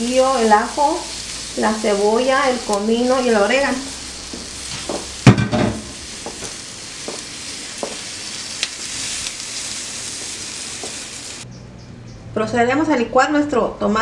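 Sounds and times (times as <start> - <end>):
vegetables sizzling on a griddle: 0.0 - 11.5
loud knock: 4.9 - 5.9.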